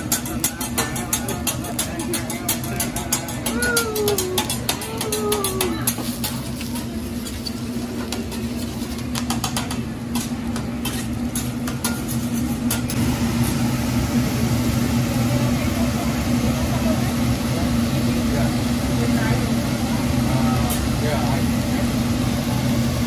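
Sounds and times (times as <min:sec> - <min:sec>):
metal spatulas scraping on griddle: 0:00.0 - 0:13.0.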